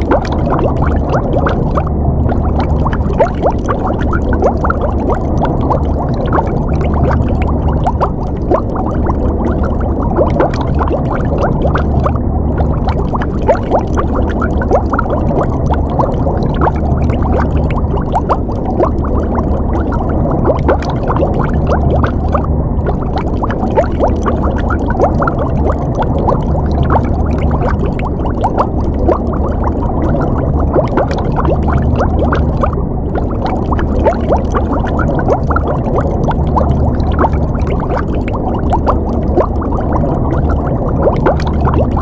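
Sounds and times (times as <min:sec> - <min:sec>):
low steady rumble: 0:00.0 - 0:42.0
underwater bubbling: 0:00.0 - 0:42.0.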